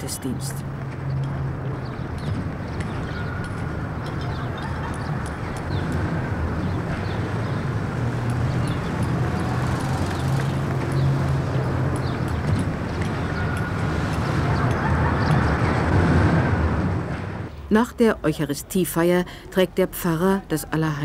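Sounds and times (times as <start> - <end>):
faint scattered clicks: 10.1 - 15.7.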